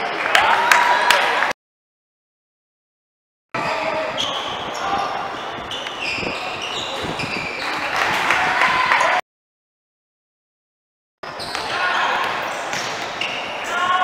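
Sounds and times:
sneakers squeaking on court: 0:03.6 - 0:08.1, 0:11.3 - 0:13.7.

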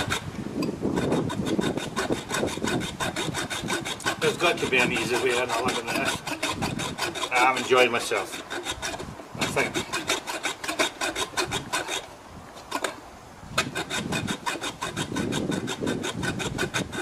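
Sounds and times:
hacksaw cutting through bolt: 0:00.0 - 0:12.1, 0:12.7 - 0:13.0, 0:13.6 - 0:17.0.

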